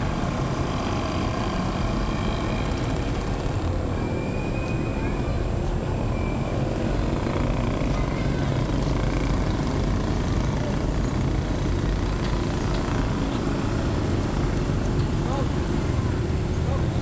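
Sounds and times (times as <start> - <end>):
low traffic rumble: 0.0 - 17.0.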